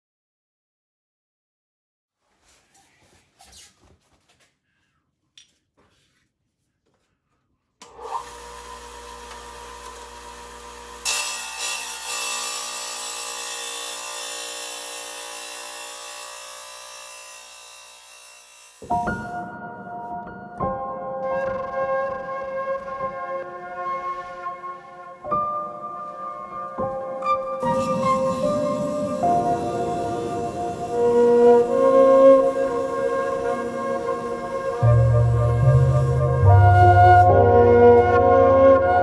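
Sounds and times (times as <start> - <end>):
wet tile saw motor running: 7.8 - 19.3, 27.6 - 36.6
saw blade grinding glass: 11.0 - 19.0, 27.6 - 36.4.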